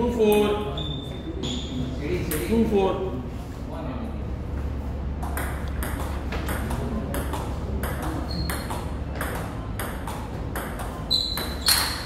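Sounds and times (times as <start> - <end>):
steady low hum: 0.0 - 12.0
table tennis ball clicking: 5.2 - 12.0.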